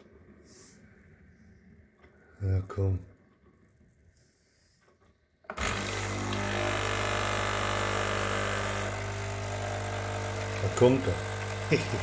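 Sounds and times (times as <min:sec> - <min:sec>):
coffee machine pump buzzing: 0:05.5 - 0:12.0.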